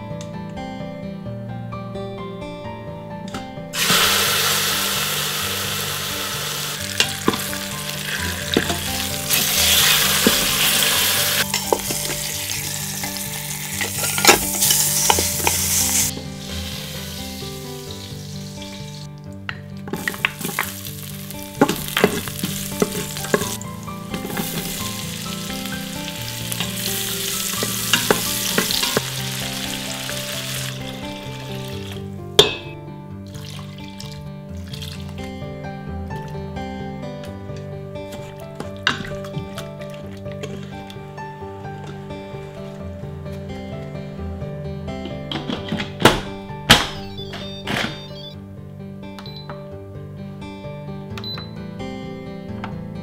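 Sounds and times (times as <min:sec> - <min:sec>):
meat sizzling in hot oil: 0:03.8 - 0:19.1, 0:20.0 - 0:32.1, 0:33.3 - 0:35.1
onions sauteing: 0:03.8 - 0:19.1, 0:19.9 - 0:32.5.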